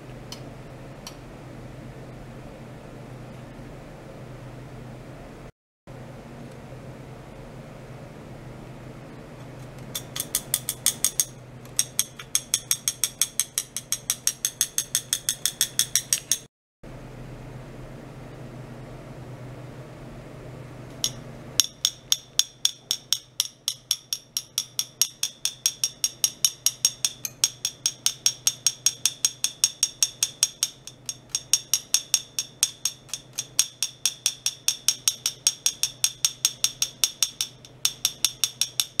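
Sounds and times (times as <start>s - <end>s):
steady low hum: 16.8s - 38.9s.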